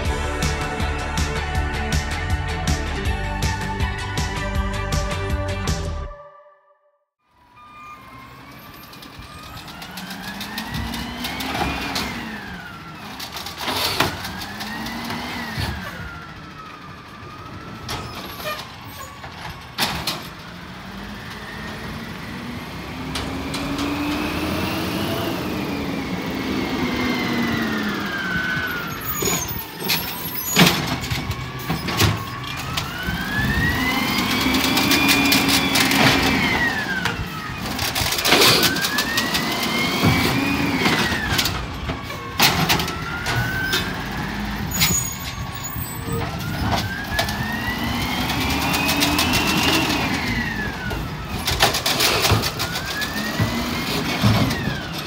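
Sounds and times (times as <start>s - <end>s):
garbage truck engine revving: 8.1s - 55.0s
sharp metallic bangs and clunks: 17.9s - 20.5s, 28.9s - 45.6s, 48.3s - 55.0s.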